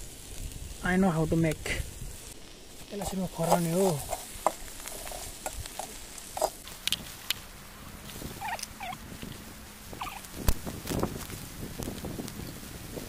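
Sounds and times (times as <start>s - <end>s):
short chirping calls: 8.4s - 9.0s, 10.0s - 10.3s.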